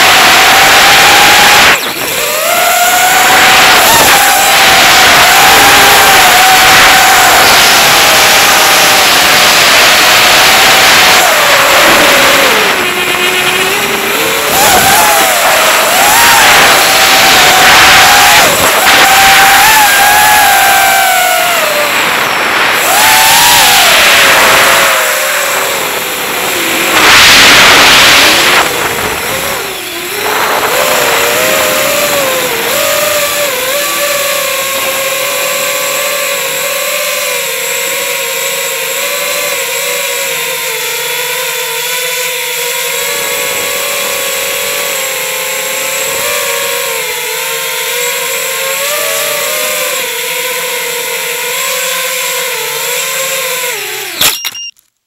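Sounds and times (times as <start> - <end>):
loud rushing bursts: 0.0 - 36.7
drone motors whining: 0.0 - 54.8.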